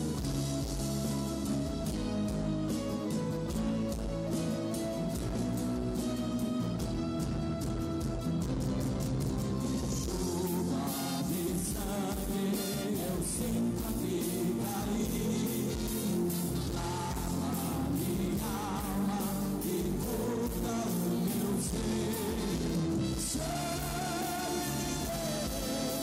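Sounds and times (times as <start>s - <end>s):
acoustic guitar: 0.0s - 26.0s
gospel band playing: 0.0s - 26.0s
backing singers: 9.7s - 26.0s
lead vocals: 9.8s - 26.0s.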